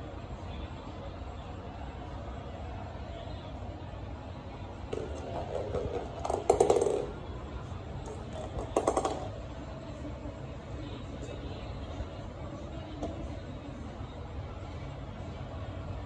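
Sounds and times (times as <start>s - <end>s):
toy ball rattling across wooden floor: 4.9s - 9.5s.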